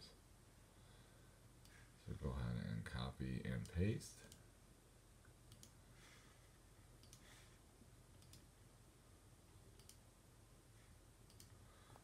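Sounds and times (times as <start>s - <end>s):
faint computer mouse clicks: 5.5s - 5.8s, 7.0s - 7.3s, 8.2s - 8.5s, 9.8s - 10.0s, 11.3s - 11.6s.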